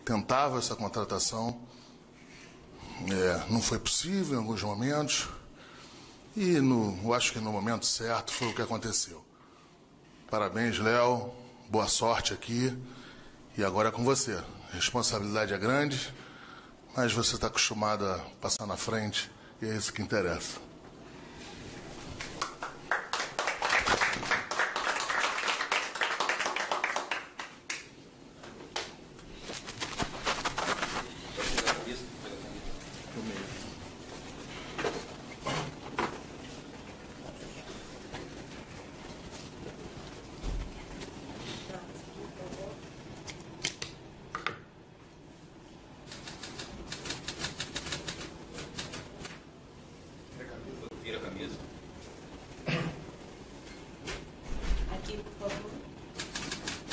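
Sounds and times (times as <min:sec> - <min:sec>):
audience applause: 0:22.2 - 0:27.9.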